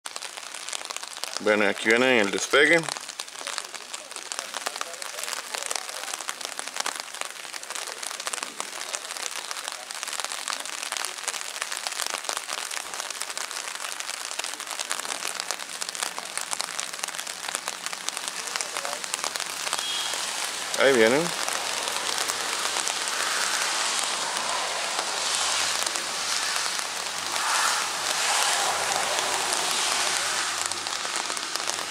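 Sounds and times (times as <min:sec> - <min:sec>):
rain pattering: 0:00.0 - 0:31.9.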